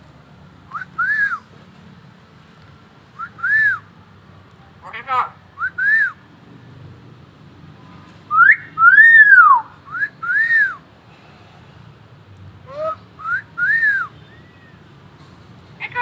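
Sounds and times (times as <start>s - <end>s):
myna whistling: 0.7s - 1.4s, 3.2s - 3.8s, 5.6s - 6.2s, 8.3s - 10.8s, 12.7s - 14.8s.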